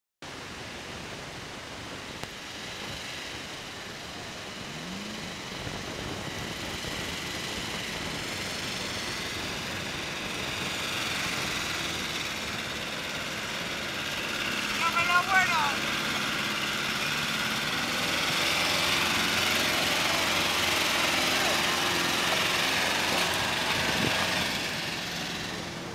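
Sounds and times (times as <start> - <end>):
engine running at low revs: 0.3 - 25.9.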